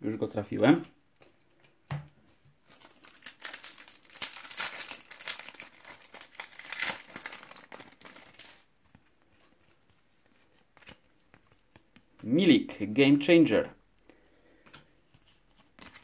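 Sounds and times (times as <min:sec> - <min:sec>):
foil wrapper crinkling and tearing: 0:02.6 - 0:08.7.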